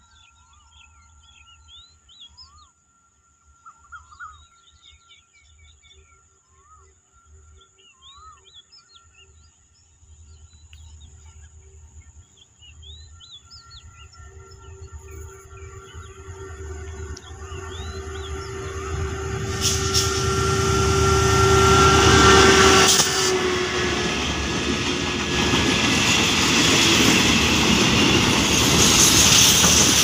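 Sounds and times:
high-pitched whine: 12.9s - 30.0s.

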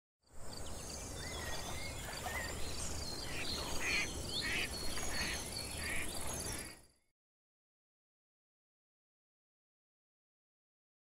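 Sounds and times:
insects chirping: 0.3s - 6.9s
birds calling and singing: 0.4s - 7.1s.

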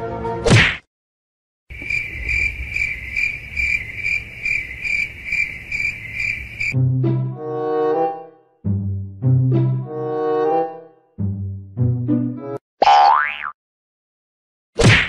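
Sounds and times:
music: 0.0s - 0.5s, 6.8s - 12.6s
cricket chirping: 1.7s - 6.8s.

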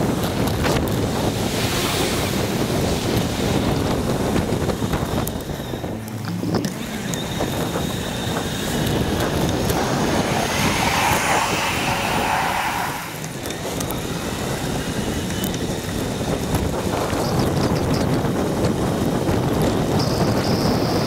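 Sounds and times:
road noise: 0.0s - 21.0s
wind rumbling on microphone: 0.0s - 21.0s
tram whine: 3.4s - 16.0s.

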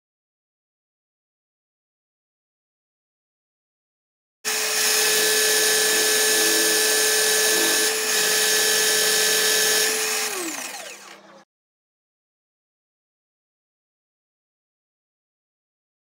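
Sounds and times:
pillar drill whining: 4.5s - 11.5s.

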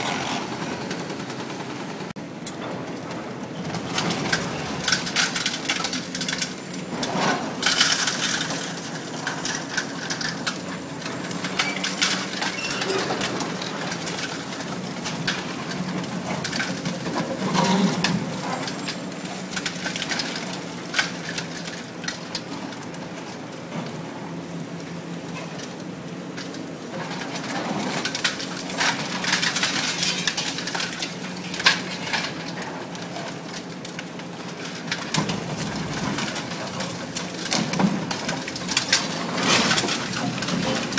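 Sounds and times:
concrete cracking and crunching: 26.4s - 40.9s.

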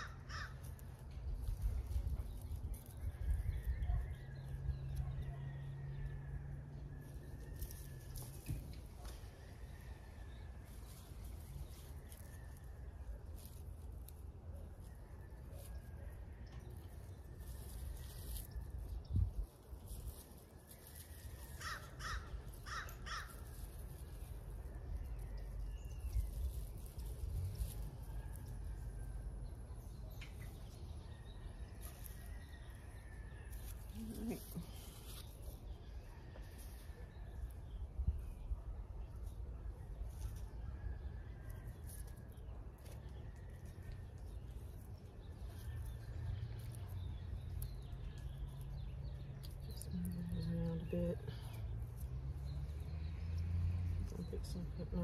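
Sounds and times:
hands rustling in loose soil: 0.0s - 5.3s, 6.0s - 55.0s
low outdoor rumble: 0.0s - 55.0s.

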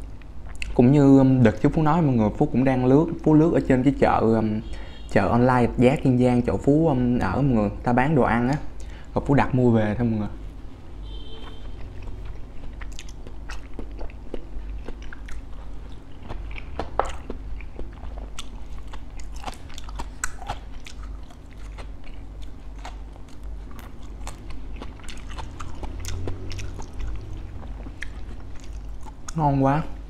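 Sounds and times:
steady low hum: 0.0s - 30.0s
chewing and crunching crispy pancakes: 11.2s - 30.0s.

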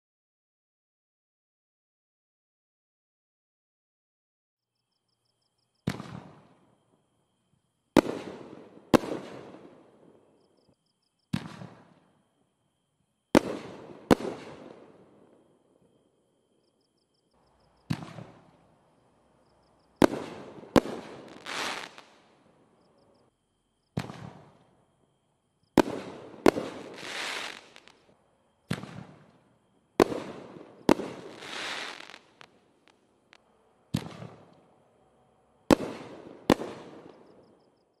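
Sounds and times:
fireworks bangs echoing: 5.8s - 6.6s, 8.0s - 10.0s, 13.4s - 15.2s, 17.8s - 18.6s, 20.0s - 22.2s, 24.0s - 24.6s, 25.8s - 28.0s, 28.7s - 29.4s, 30.0s - 33.0s, 33.9s - 34.6s, 35.7s - 37.4s
crackling firework tail: 5.8s - 7.0s, 7.9s - 10.6s, 11.3s - 12.4s, 13.2s - 16.0s, 17.4s - 23.3s, 23.9s - 24.9s, 25.7s - 34.8s, 35.6s - 37.7s.

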